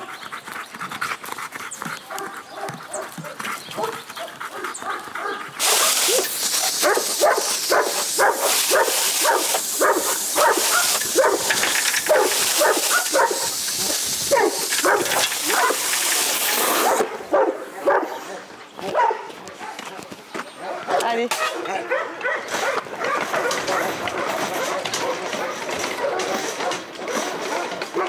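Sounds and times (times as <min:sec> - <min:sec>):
dogs barking and yelping: 0:00.0 - 0:19.8, 0:20.6 - 0:28.0
steady hiss: 0:05.6 - 0:17.1.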